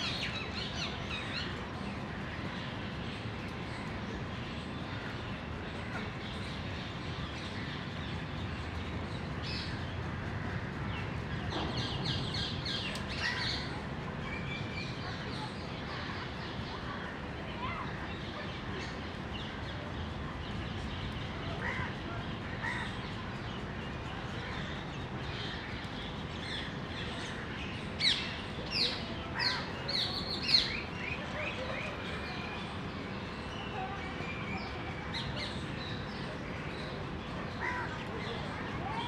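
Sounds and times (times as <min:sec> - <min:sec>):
outdoor background hiss: 0:00.0 - 0:39.0.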